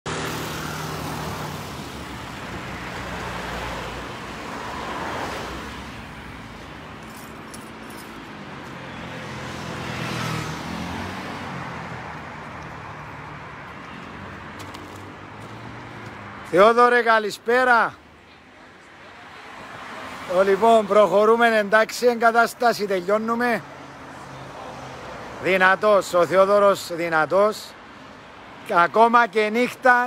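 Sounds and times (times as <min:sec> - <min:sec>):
street traffic hum: 0:00.0 - 0:30.0
vehicle passing: 0:00.1 - 0:16.8.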